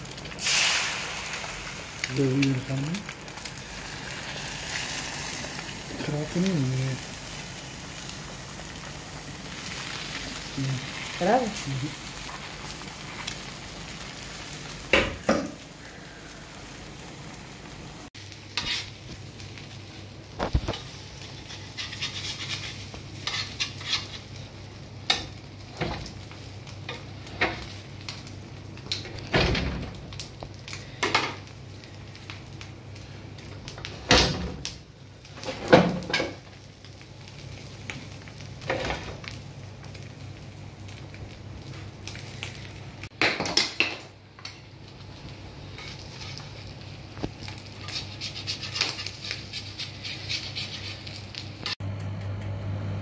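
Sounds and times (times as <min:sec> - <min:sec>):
egg sizzling on griddle: 0:00.0 - 0:29.3, 0:29.9 - 0:51.8
metal knife scraping griddle: 0:18.6 - 0:19.0, 0:21.3 - 0:24.3, 0:47.8 - 0:51.2.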